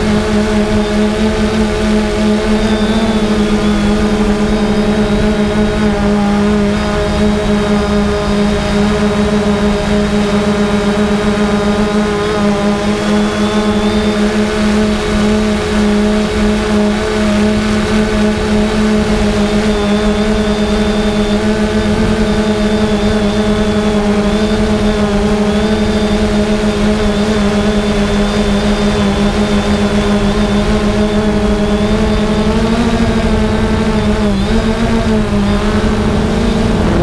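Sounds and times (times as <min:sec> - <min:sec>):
drone propellers humming: 0:00.0 - 0:37.0
thin high whine: 0:00.0 - 0:37.0.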